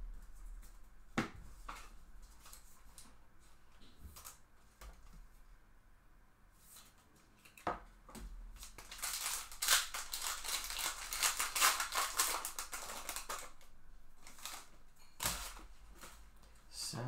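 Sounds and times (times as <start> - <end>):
foil wrapper tearing: 8.6 - 16.1
foil wrapper crinkling: 8.6 - 16.6.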